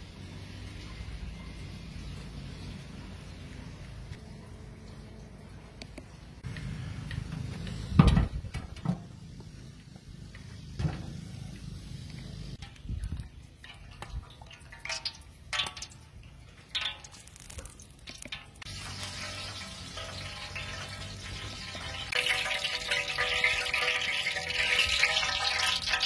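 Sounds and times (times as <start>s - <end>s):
oil poured into wok: 13.6s - 26.0s.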